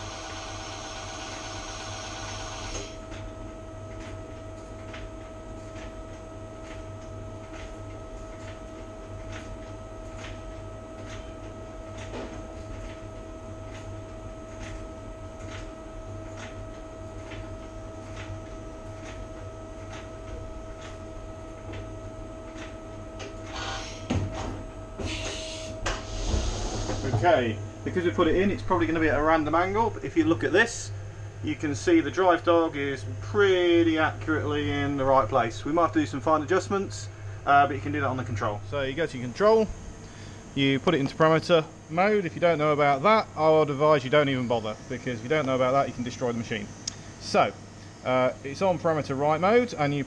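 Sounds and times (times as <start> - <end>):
lathe machine hum: 0.0 - 3.1
rush of mechanical noise: 25.1 - 27.3.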